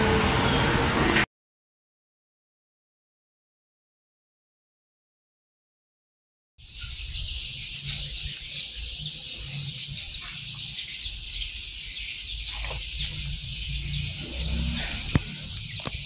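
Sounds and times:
night insects chorus: 6.6 - 16.0.

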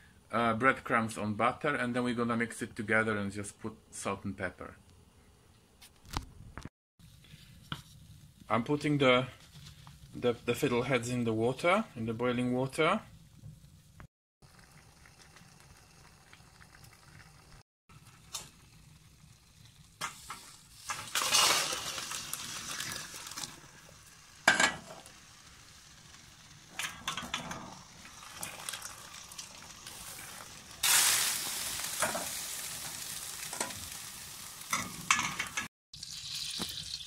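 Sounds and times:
butter sizzling in frying pan: 14.4 - 37.0
water pouring into colander: 21.0 - 24.0, 27.8 - 31.4, 36.0 - 37.0.

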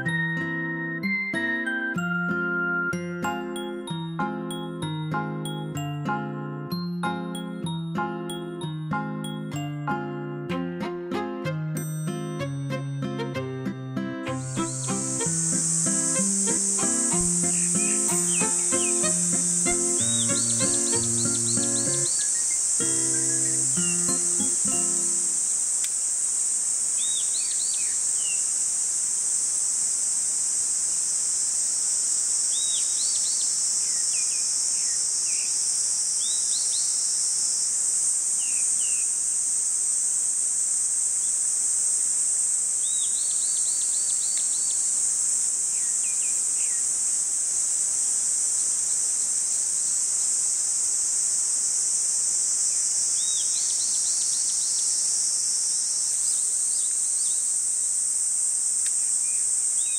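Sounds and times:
bird chirping: 14.2 - 25.6, 27.0 - 28.4, 42.8 - 45.0, 45.7 - 46.9
high-pitched insect chorus: 14.3 - 59.9.

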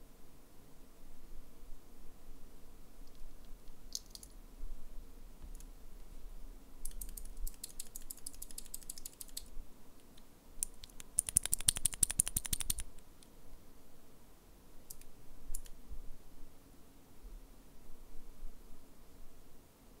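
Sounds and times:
mechanical keyboard switch clicking: 10.6 - 12.8.

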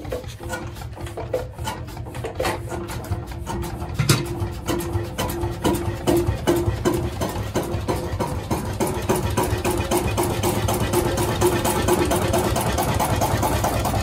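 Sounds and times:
engine idling: 3.8 - 14.0.

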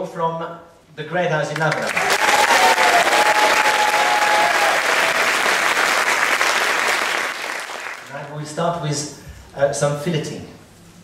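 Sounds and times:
audience applauding: 1.7 - 8.3.

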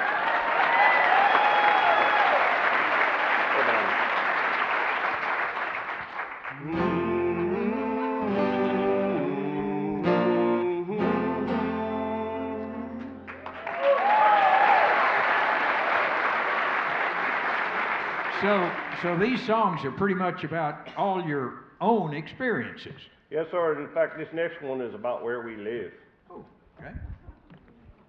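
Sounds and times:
audience applause: 0.0 - 7.0, 13.3 - 19.8
acoustic guitar chords: 6.5 - 13.6.

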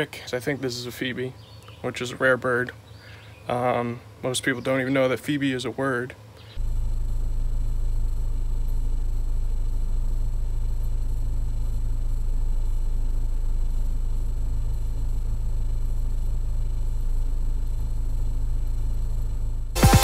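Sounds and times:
loud low rumble: 6.6 - 20.0.

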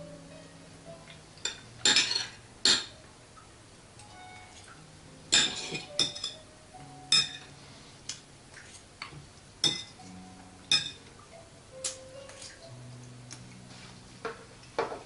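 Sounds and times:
cutlery clinking on plate: 5.3 - 6.4.

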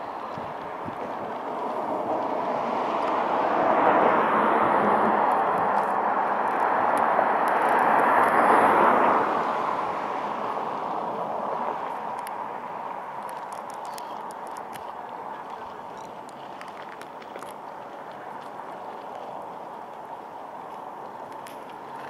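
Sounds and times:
passing vehicle rushing: 0.0 - 13.2.

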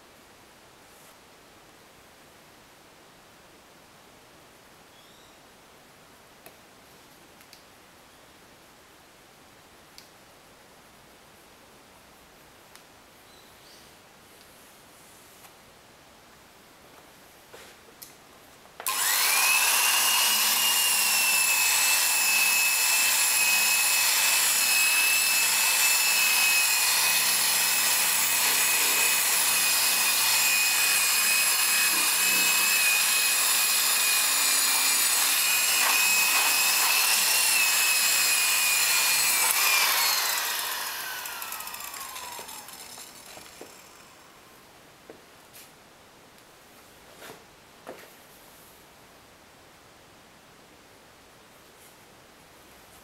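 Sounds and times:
electric polisher whining: 18.8 - 44.0.

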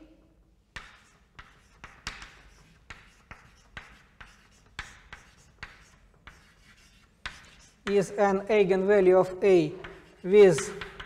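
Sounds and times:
chalk scratching across board: 0.7 - 8.2, 9.7 - 11.0
chalk tapping on chalkboard: 0.7 - 8.2, 9.7 - 11.0.

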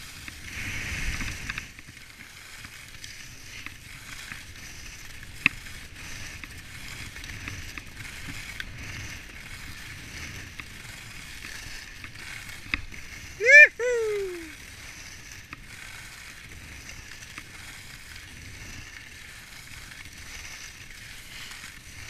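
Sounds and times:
skis scraping over snow: 0.0 - 22.0.

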